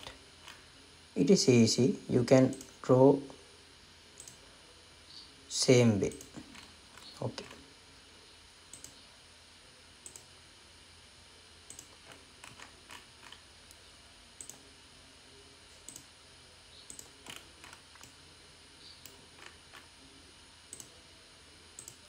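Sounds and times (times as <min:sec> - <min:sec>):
low steady hum: 0:00.0 - 0:22.0
faint computer mouse clicks: 0:04.2 - 0:04.4, 0:08.7 - 0:09.0, 0:10.0 - 0:10.3, 0:11.7 - 0:13.8, 0:14.4 - 0:14.6, 0:16.9 - 0:18.2, 0:20.7 - 0:20.9, 0:21.8 - 0:22.0.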